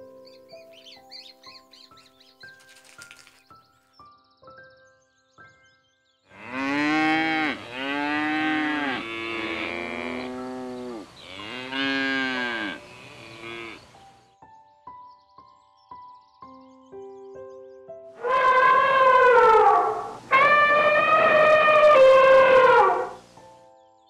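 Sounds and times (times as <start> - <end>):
cow mooing: 6.4 - 13.8, 18.2 - 23.2.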